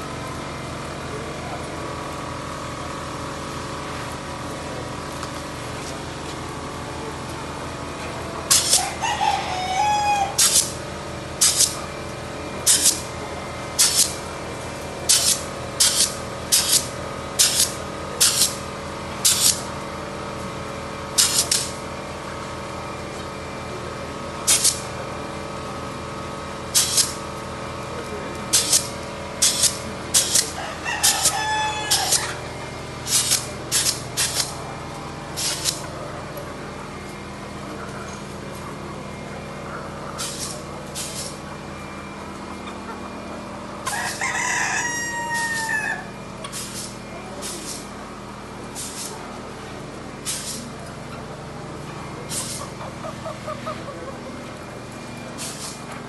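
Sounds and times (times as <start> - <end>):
steady low hum: 10.2 - 44.8
hens squawking: 52.4 - 54.3.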